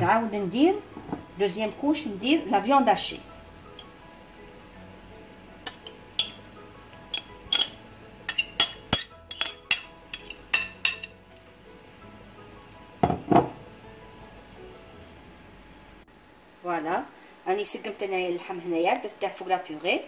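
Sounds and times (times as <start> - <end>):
metal spoon clinking on glass bowl: 5.7 - 6.4, 7.1 - 11.1.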